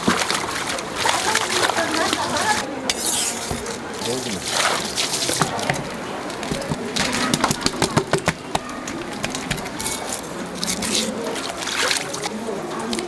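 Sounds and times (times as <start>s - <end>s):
knife knocking on wooden board: 6.5s - 9.7s.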